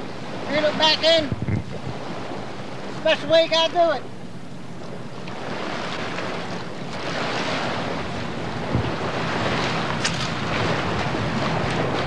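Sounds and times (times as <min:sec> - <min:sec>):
wind buffeting microphone: 0:00.0 - 0:03.0, 0:05.4 - 0:12.0
waves lapping on gravel: 0:08.8 - 0:12.0.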